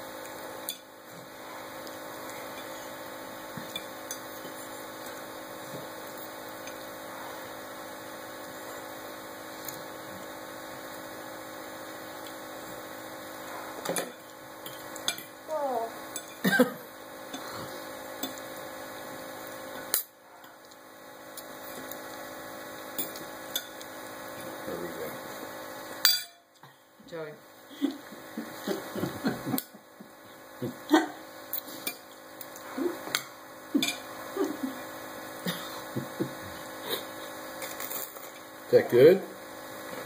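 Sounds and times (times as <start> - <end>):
steady background hum: 0.0 - 40.0
forks clinking on bowl and tray: 26.0 - 26.4, 33.8 - 34.0.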